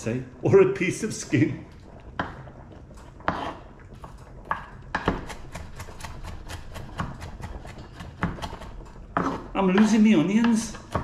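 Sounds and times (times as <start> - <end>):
knife chopping on wooden board: 4.5 - 11.0.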